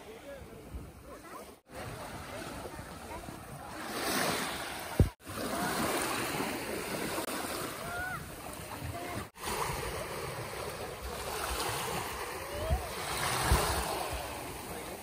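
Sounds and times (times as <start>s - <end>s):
small waves lapping on shore: 0.0s - 15.0s
wind on microphone: 4.8s - 5.2s, 11.0s - 14.8s.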